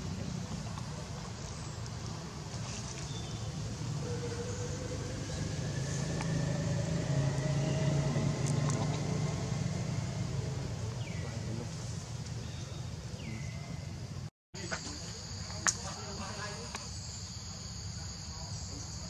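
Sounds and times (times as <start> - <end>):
vehicle engine humming: 0.0 - 14.3
faint rising tone: 4.0 - 10.9.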